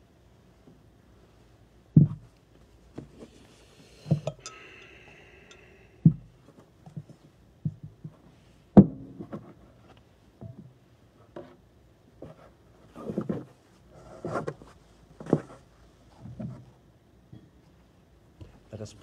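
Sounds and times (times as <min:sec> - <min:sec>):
metal vessels knocking and clinking: 0:04.2 - 0:05.7
vessel ringing: 0:04.3 - 0:06.0.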